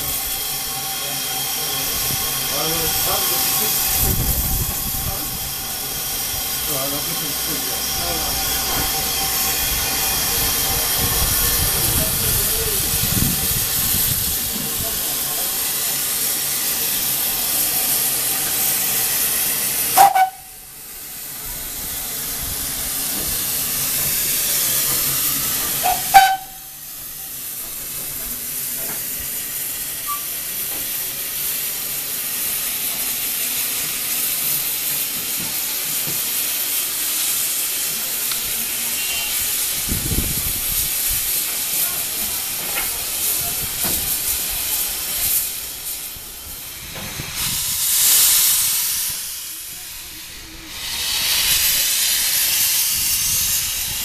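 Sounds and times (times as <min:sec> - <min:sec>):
steam locomotive hissing: 0:00.0 - 0:54.0
steam whistle toots: 0:19.9 - 0:20.7, 0:25.8 - 0:26.9, 0:38.8 - 0:39.6.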